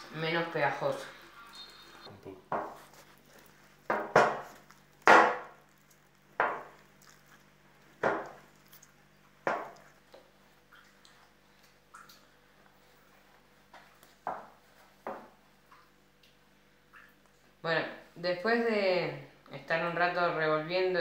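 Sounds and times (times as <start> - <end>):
dough slapping in a plastic bowl: 3.8 - 5.7, 8.0 - 8.5.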